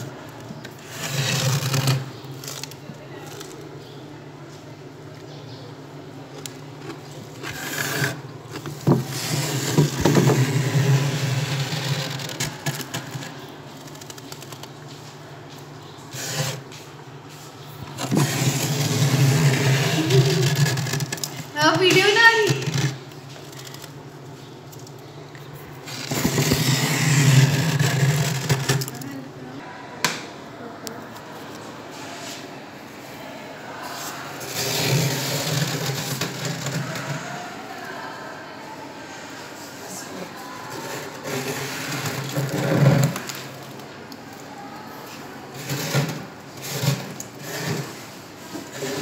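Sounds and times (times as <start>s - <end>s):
freezer frost being scraped: 0.0s - 3.7s, 6.8s - 15.2s, 16.1s - 16.8s, 17.9s - 23.9s, 25.8s - 29.2s, 33.8s - 37.7s, 40.6s - 43.8s, 45.5s - 49.0s
freezer humming: 0.0s - 29.6s, 34.2s - 38.3s
fingers scraping frost: 18.0s - 23.0s, 25.8s - 29.0s.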